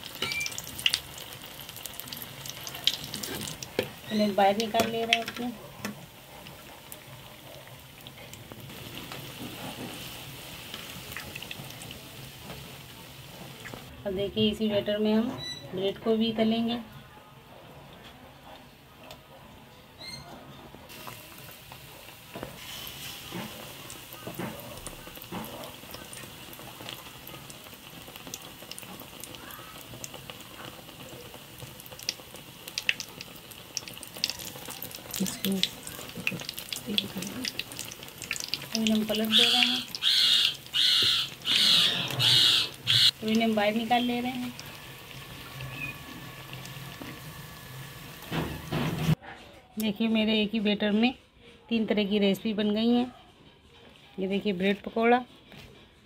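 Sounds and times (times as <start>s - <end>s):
oil sizzling while deep-frying: 0.0s - 15.0s, 20.9s - 49.2s.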